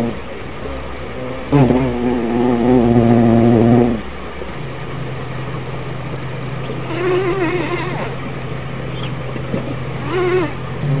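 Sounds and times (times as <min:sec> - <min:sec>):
bee buzzing in flight: 0:01.5 - 0:04.0.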